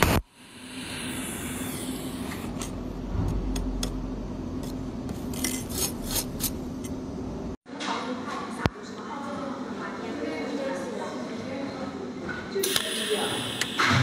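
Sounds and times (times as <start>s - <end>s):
welding pulse crack: 0.0s - 2.7s
steady low hum: 0.0s - 7.6s.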